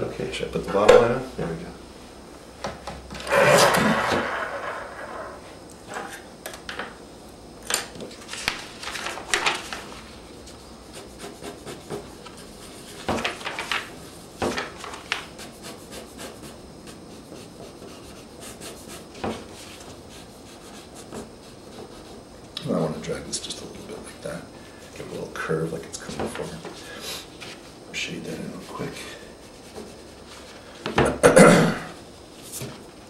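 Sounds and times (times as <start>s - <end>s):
paper rustling: 8.1s - 10.2s, 12.2s - 15.3s
pencil sketching on paper: 10.9s - 12.0s, 15.4s - 19.0s, 19.6s - 22.2s.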